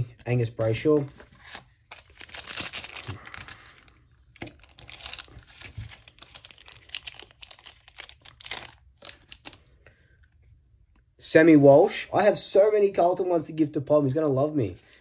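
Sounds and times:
wrapper crinkling and tearing: 1.2s - 9.7s.

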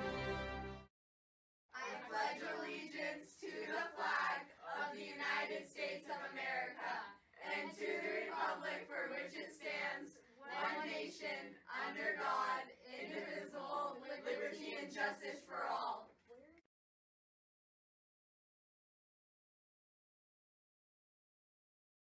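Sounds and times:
group of voices reciting in unison: 1.7s - 16.2s.

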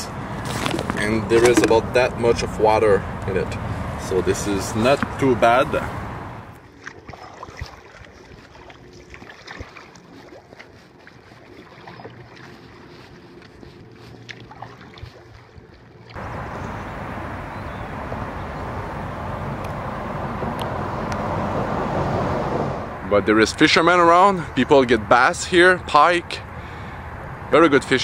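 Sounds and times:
paddle splashing through water: 0.4s - 2.0s, 6.6s - 16.8s.

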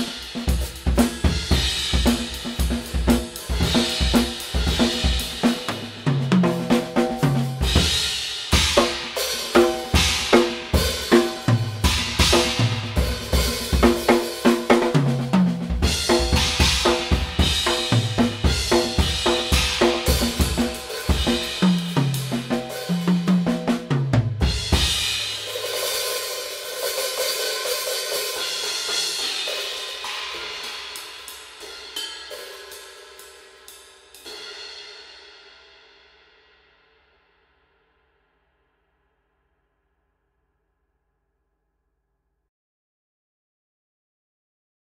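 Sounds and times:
drum kit groove: 0.0s - 34.8s.

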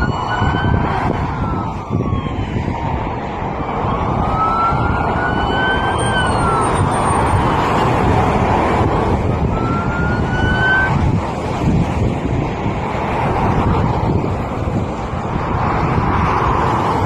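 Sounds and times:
police siren wailing: 0.0s - 12.1s
highway traffic rush: 0.0s - 17.0s.

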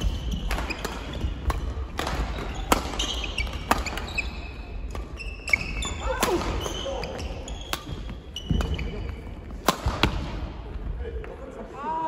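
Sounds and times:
rackets striking shuttlecock: 0.0s - 8.8s, 9.5s - 10.4s
shoes squeaking on wooden floor: 2.3s - 9.6s.

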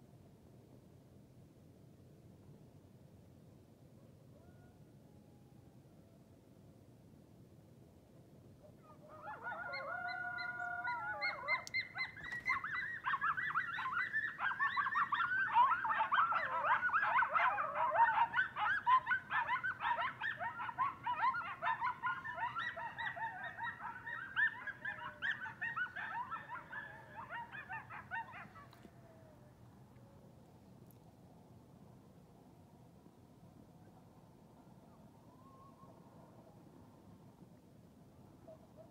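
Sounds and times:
coyotes howling and yipping: 4.3s - 6.2s, 8.6s - 30.4s, 34.6s - 36.8s, 38.3s - 38.9s.

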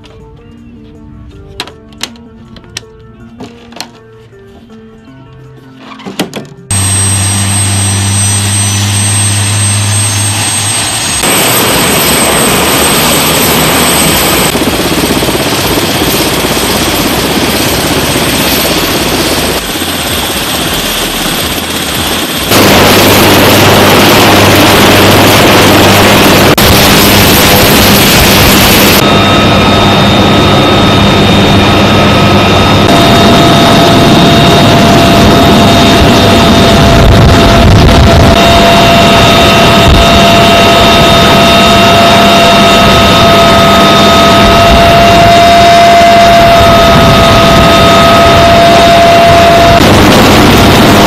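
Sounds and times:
helicopter turbine and rotor: 6.7s - 51.0s.

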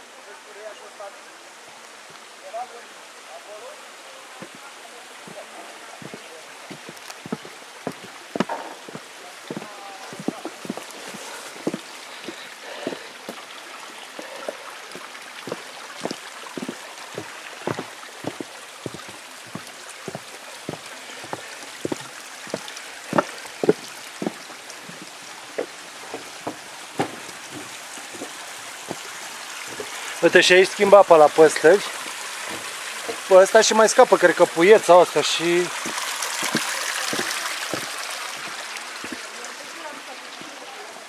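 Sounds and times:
running water hiss: 0.0s - 41.0s
footsteps on wooden boards: 4.4s - 30.3s, 31.8s - 33.3s, 35.5s - 39.4s.

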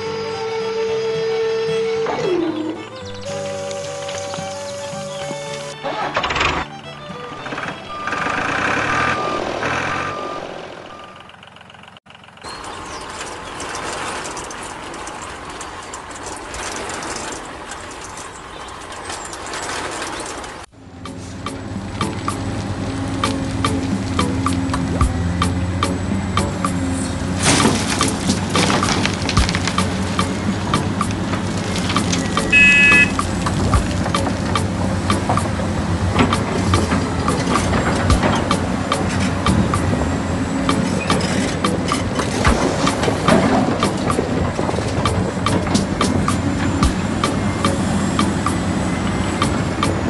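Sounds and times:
short high beep: 9.0s - 11.3s, 32.5s - 33.2s
small motor running with rattling clicks: 11.3s - 20.7s.

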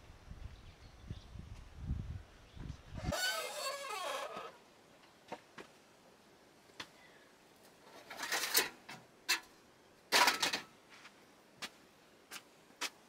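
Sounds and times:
rustling scrapes: 3.0s - 4.6s.

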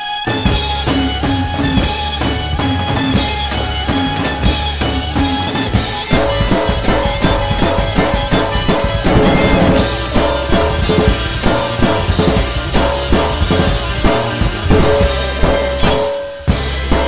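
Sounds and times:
damped drum kit playing: 0.0s - 17.0s
rock backing track: 0.0s - 17.0s.

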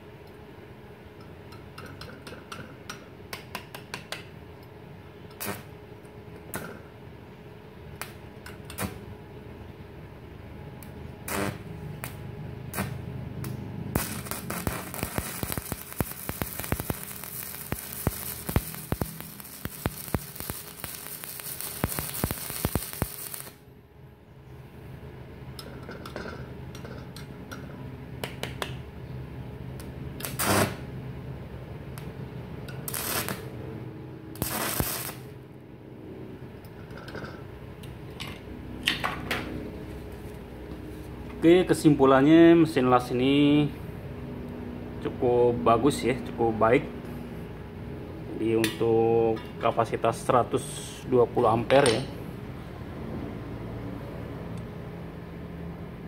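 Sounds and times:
welding arc crackling: 5.3s - 5.8s, 8.0s - 9.1s, 11.2s - 23.6s, 29.8s - 31.0s, 32.7s - 33.6s, 34.3s - 35.4s.

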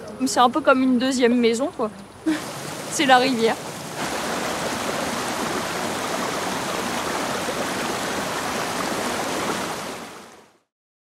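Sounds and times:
water rushing over rocks: 2.3s - 10.6s.

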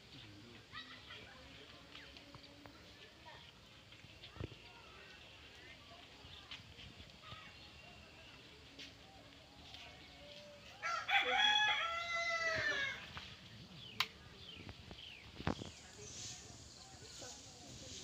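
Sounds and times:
rooster crowing: 10.8s - 13.0s.

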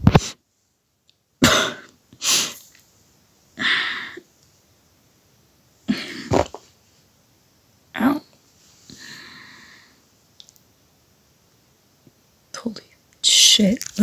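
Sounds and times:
person coughing: 1.4s - 2.6s, 5.9s - 6.6s.

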